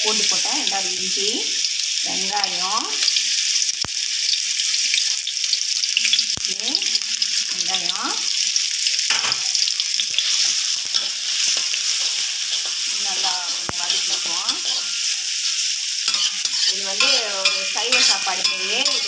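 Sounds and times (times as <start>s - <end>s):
onion sizzling in hot oil: 0.0s - 19.0s
metal spatula scraping pan: 9.1s - 19.0s.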